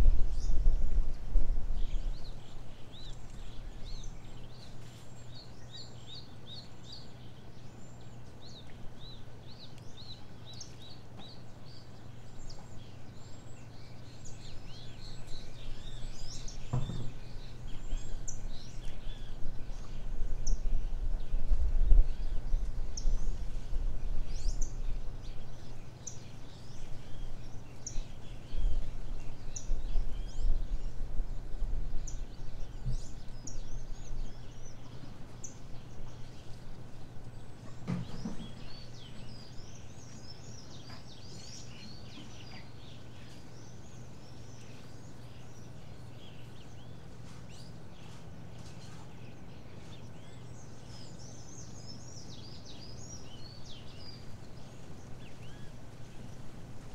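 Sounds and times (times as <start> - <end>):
small birds chirping: 0.0 - 56.9
knock: 16.7 - 17.2.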